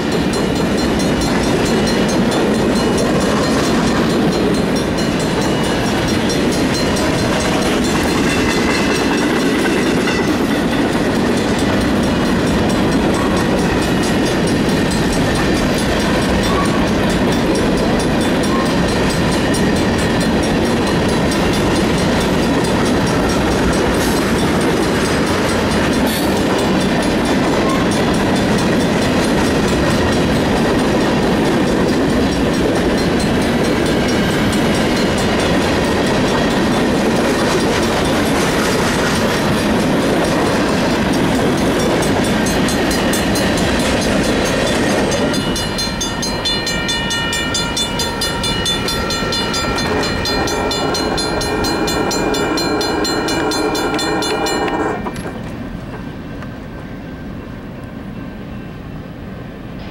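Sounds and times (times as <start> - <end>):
steel wheels clattering on rails: 0.0 - 56.6
freight train rumbling past: 0.0 - 59.9
steady high-pitched tone: 42.0 - 55.5.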